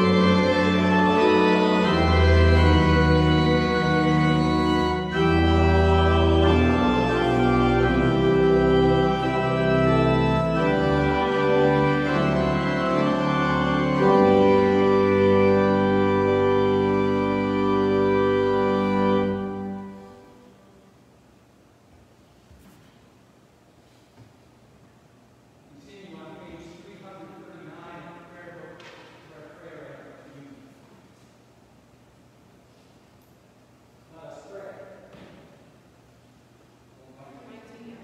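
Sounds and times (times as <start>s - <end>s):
church organ chords: 0.0s - 21.2s.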